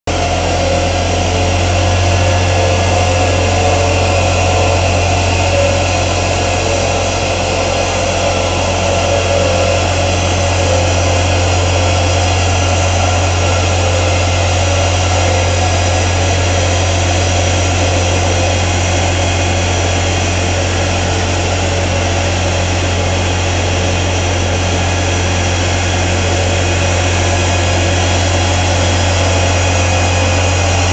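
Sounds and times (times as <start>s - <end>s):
truck engine deep hum: 0.1s - 30.9s.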